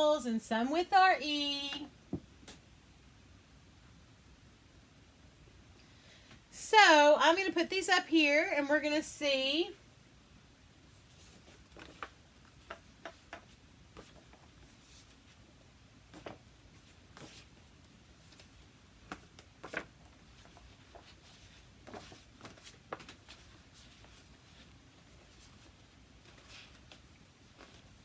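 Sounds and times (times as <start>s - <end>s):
paper cards shuffling: 11.2s - 15.4s, 18.2s - 28.0s.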